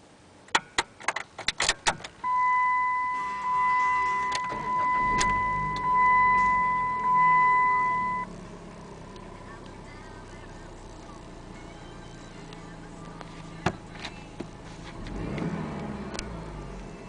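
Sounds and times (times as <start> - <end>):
car engine idling: 0.0 - 17.0
car engine cranking and starting: 0.3 - 17.0
seatbelt warning chime beeping: 2.2 - 8.3.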